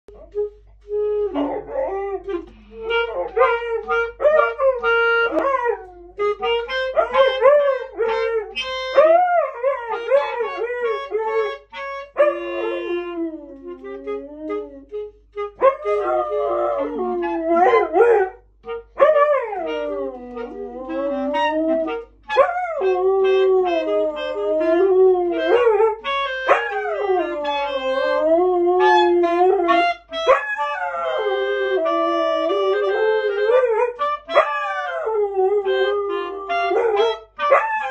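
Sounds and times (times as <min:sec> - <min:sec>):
clarinet playing: 0:00.1 - 0:37.9
dog howling: 0:12.2 - 0:13.8, 0:15.8 - 0:18.4.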